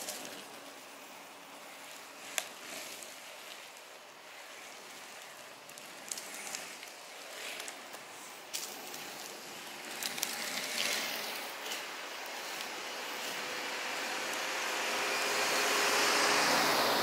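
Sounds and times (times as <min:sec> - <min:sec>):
wheels rolling on asphalt: 0:00.0 - 0:17.0.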